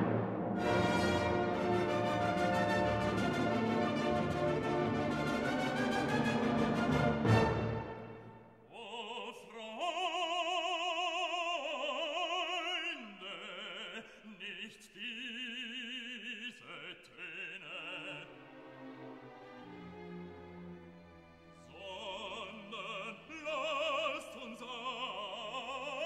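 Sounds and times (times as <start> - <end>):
orchestral chord: 0.0 - 8.4
operatic voice singing: 8.7 - 18.5, 21.6 - 26.0.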